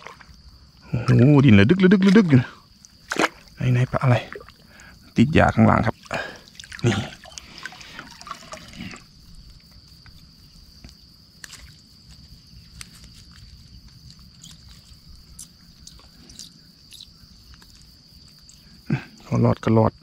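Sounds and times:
high-pitched insect buzz: 8.0s - 18.8s.

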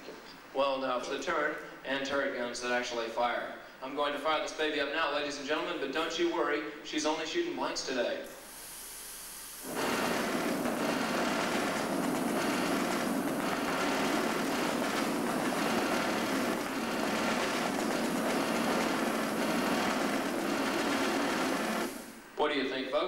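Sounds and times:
machine guns firing: 9.6s - 22.2s.

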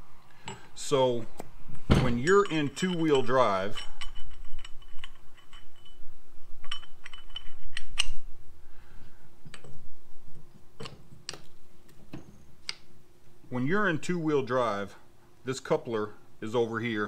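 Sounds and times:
metal shafts clinking and knocking: 1.8s - 8.2s.

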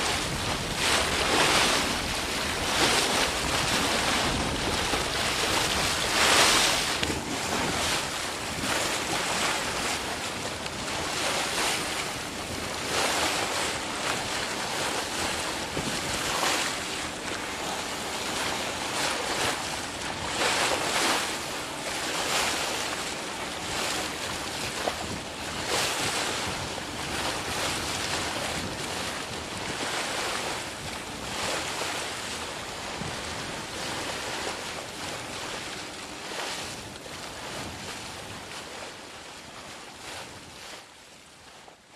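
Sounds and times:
rushing surf-like noise: 0.0s - 12.0s.

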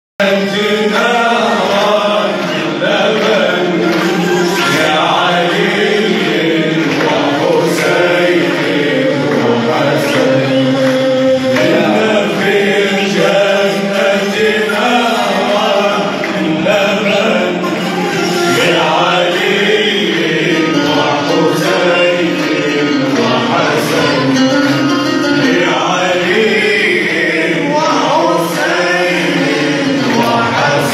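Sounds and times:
men singing in harmony: 0.2s - 30.9s.

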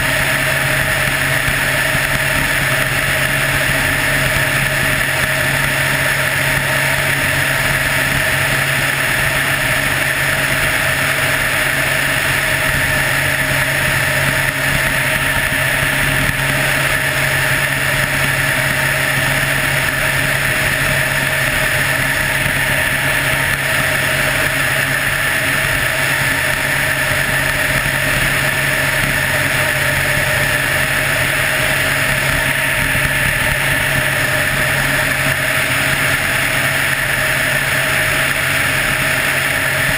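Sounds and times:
helicopter engine and rotor drone: 0.0s - 39.9s.

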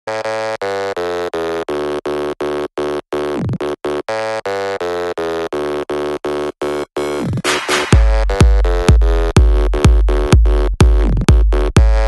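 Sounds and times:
buzzy synthesizer chords: 0.1s - 12.0s
electronic dance music: 7.1s - 12.0s.

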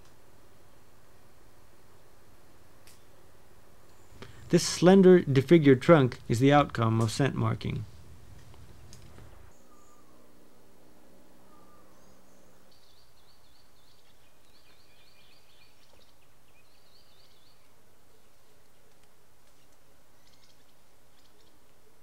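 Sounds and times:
low hum and hiss: 0.0s - 22.0s
birds warbling: 9.5s - 10.3s, 11.4s - 18.4s.

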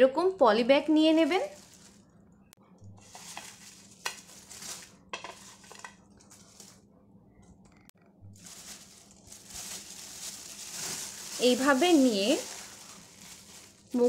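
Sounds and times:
plastic bag rustling: 1.0s - 2.1s, 3.0s - 6.8s, 8.4s - 14.0s
fries scraping on plate: 3.0s - 6.8s, 8.4s - 14.0s.

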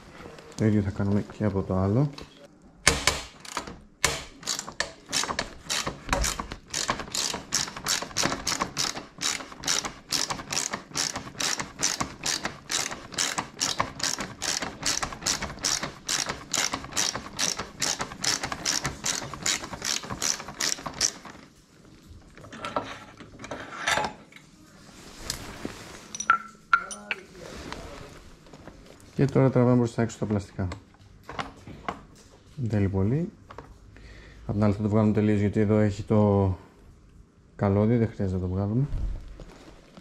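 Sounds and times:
ratchet wrench clicking: 4.4s - 21.2s.

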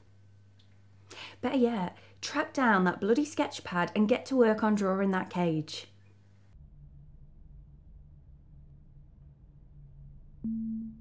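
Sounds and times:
faint low hum: 0.0s - 11.0s
low pure tone with click: 6.0s - 11.0s.

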